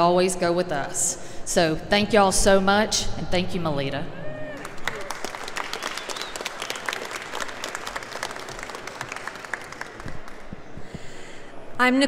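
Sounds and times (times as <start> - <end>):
crowd applauding: 4.4 - 11.2.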